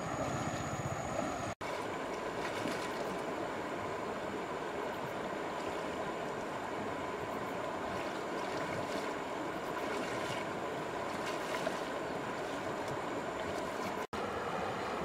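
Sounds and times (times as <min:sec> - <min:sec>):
river water flowing: 0:00.0 - 0:15.0
splashing from wading: 0:01.6 - 0:03.5, 0:05.0 - 0:14.1.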